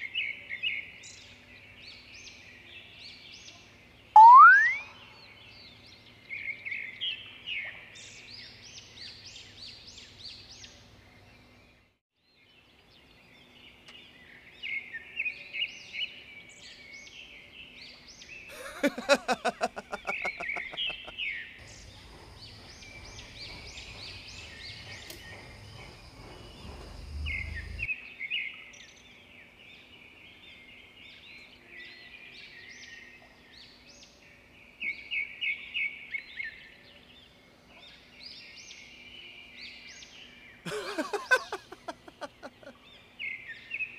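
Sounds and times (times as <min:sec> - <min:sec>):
steady outdoor hiss: 0:00.0 - 0:43.9
birds chirping: 0:17.0 - 0:27.9, 0:38.4 - 0:43.9.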